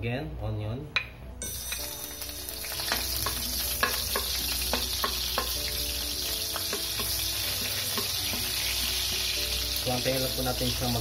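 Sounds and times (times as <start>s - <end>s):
onion sizzling in hot oil: 1.4s - 11.0s
spatula scraping and knocking pan: 2.8s - 8.8s.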